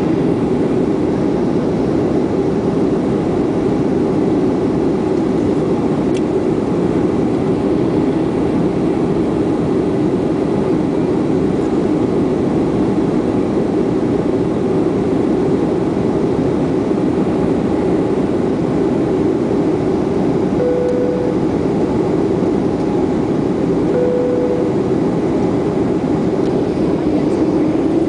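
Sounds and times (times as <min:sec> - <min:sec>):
jet cabin drone: 0:00.0 - 0:28.0
short steady tones: 0:20.6 - 0:21.6, 0:23.9 - 0:25.0.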